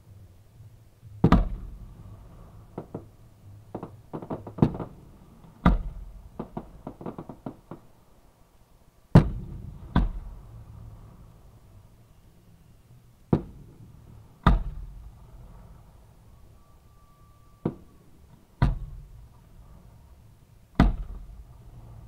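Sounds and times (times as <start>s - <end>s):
fireworks booms: 1.2s - 8.0s, 9.1s - 10.6s, 17.5s - 19.9s, 20.7s - 22.0s
small sharp fireworks pops: 2.7s - 8.0s, 17.6s - 18.0s.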